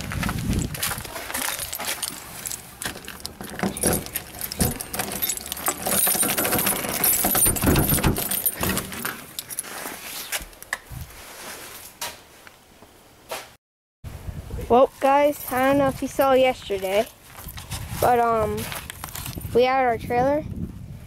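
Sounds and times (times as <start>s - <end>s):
keys jangling: 0.6s - 9.8s
key turning in lock: 1.5s - 9.6s.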